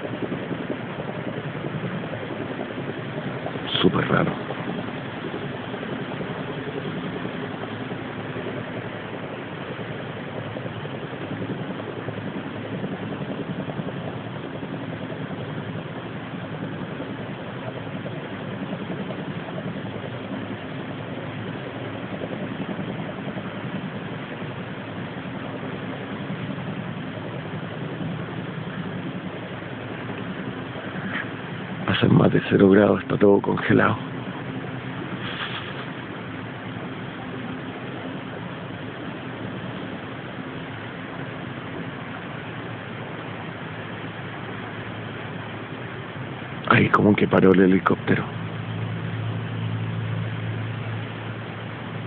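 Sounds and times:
faint hum: 0.0s - 52.0s
low drone: 0.0s - 52.0s.

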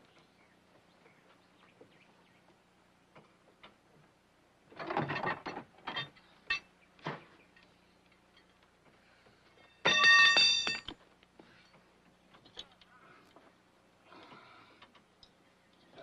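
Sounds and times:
short sharp metal clanks: 9.8s - 11.0s.

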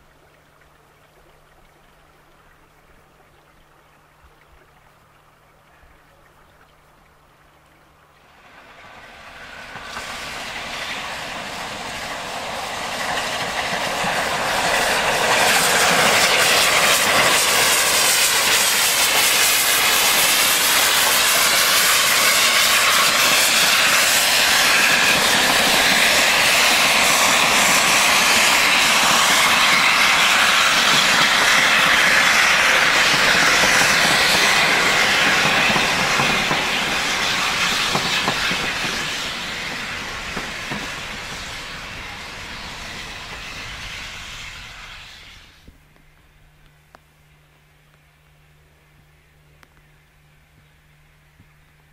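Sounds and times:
steam train passing: 8.1s - 45.7s.

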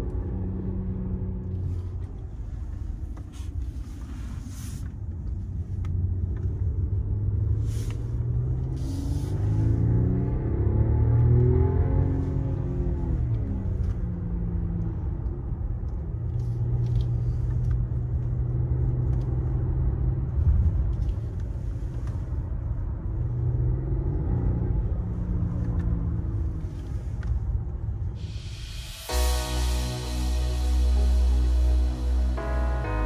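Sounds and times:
car cabin road and engine rumble: 0.0s - 33.0s
low hum changing pitch: 28.2s - 33.0s.

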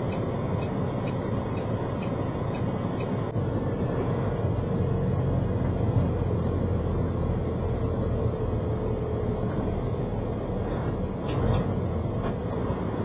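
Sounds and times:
diesel engine drone: 0.0s - 13.0s
road rumble: 0.0s - 13.0s.

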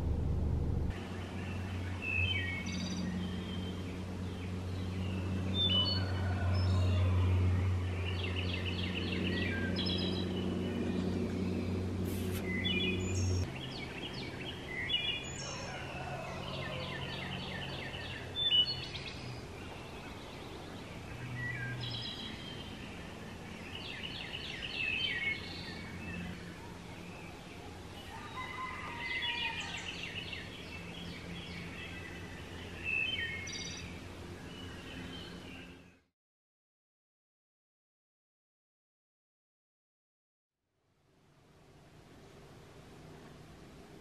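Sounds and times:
low steady hum: 0.0s - 15.4s
birds chirping and trilling: 0.9s - 36.0s.

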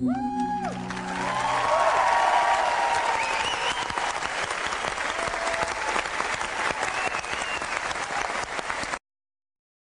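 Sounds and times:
audience applauding: 0.4s - 9.0s.

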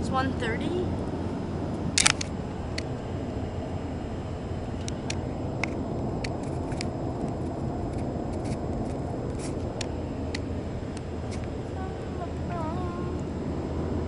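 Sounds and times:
car road and engine noise: 0.0s - 14.0s
camera handling clicks and rubbing: 2.0s - 2.9s, 4.8s - 6.9s, 7.9s - 9.9s.

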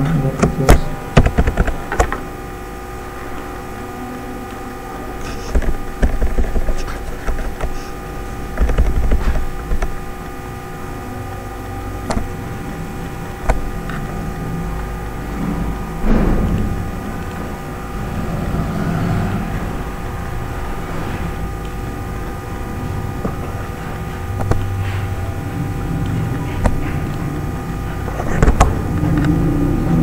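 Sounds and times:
steady electrical hum: 0.0s - 30.0s
keyboard and mouse clicks: 8.6s - 10.0s.

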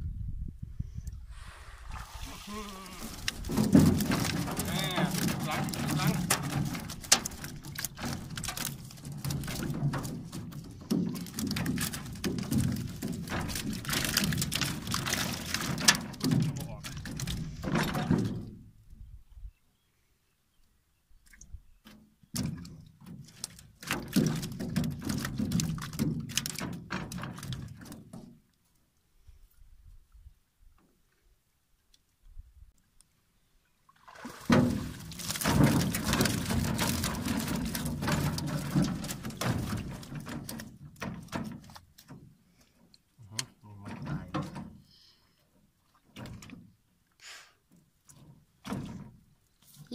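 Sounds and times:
water streaming and dripping: 1.3s - 18.5s, 33.9s - 45.0s
wire-mesh fish trap rattling: 3.0s - 18.3s, 34.5s - 41.8s.

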